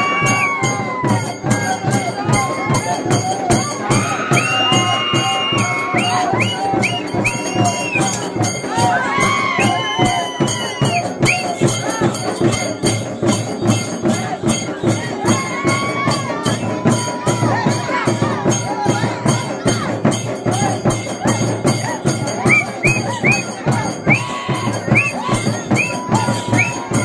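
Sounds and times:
barrel drums beating: 0:00.0 - 0:27.0
crowd voices: 0:00.0 - 0:27.0.

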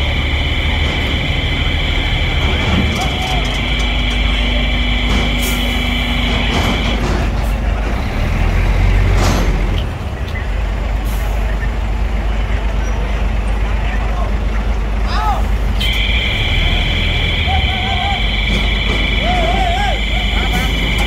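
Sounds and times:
high-pitched whine: 0:00.0 - 0:07.2
diesel truck engine rumbling: 0:00.0 - 0:21.0.

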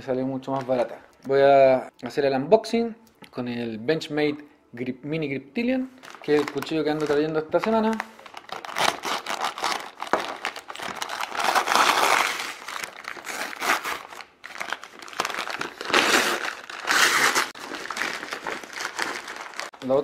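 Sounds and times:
plastic wrapping crinkling: 0:05.9 - 0:20.0
paper bag tearing and crumpling: 0:06.0 - 0:19.7.

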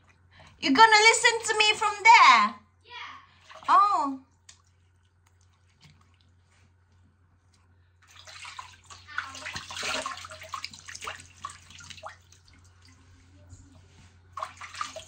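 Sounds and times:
water running and splashing: 0:08.0 - 0:13.2, 0:14.3 - 0:15.0.

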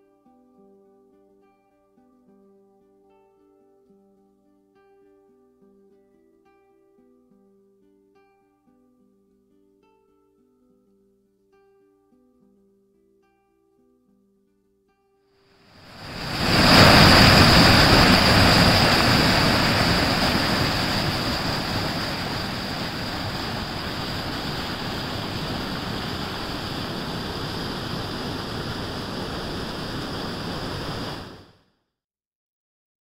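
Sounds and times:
water gushing from pipes: 0:15.9 - 0:29.1.

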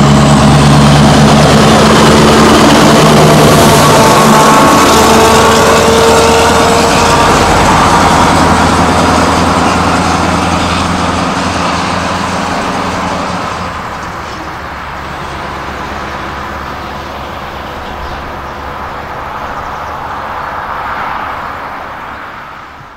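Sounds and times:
diesel truck driving away: 0:00.0 - 0:22.9.

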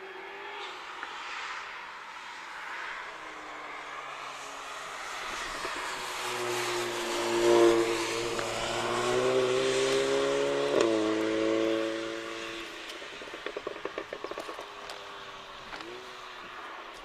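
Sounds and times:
car engine accelerating: 0:04.5 - 0:17.0.

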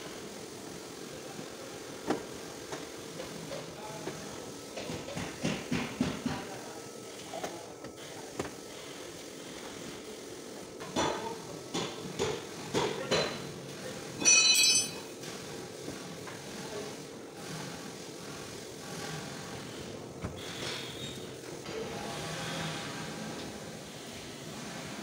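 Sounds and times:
metal tools knocking and clanking: 0:14.2 - 0:15.1
ringing metallic clatter: 0:14.2 - 0:15.1.

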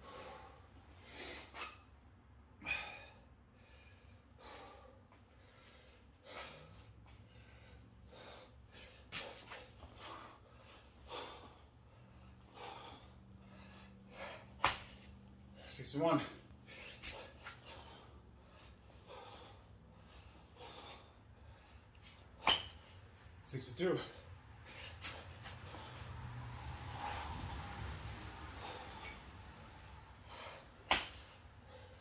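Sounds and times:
man gasping breaths: 0:00.0 - 0:01.6, 0:02.5 - 0:22.4, 0:23.8 - 0:32.0
hands slapping mat: 0:14.6 - 0:15.1, 0:30.8 - 0:31.4.

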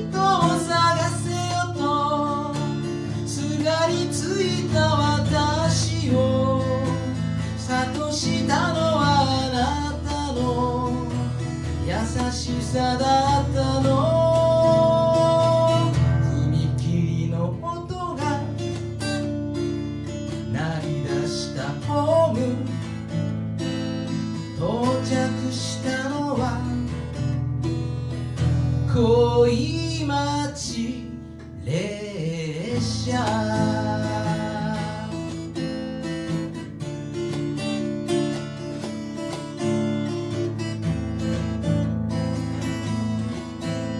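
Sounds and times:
man singing: 0:00.0 - 0:23.3, 0:24.0 - 0:27.4, 0:28.4 - 0:36.7
acoustic guitar strumming: 0:00.0 - 0:43.9.

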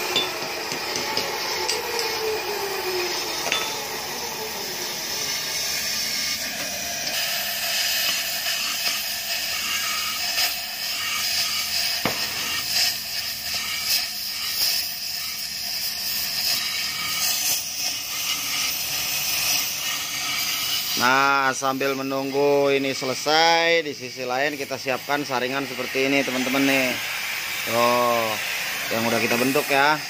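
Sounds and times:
welding torch hissing: 0:00.0 - 0:30.0.

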